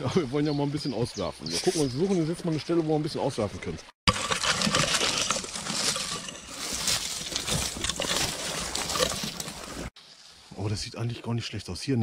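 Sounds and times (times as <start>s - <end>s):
twigs cracking: 4.1s - 9.9s
undergrowth rustling underfoot: 4.1s - 10.8s.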